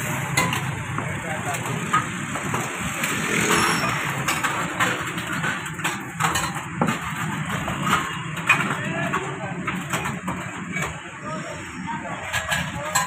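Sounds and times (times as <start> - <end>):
busy background noise: 0.0 - 13.0
steel dishes clinking: 3.3 - 11.0, 12.2 - 13.0.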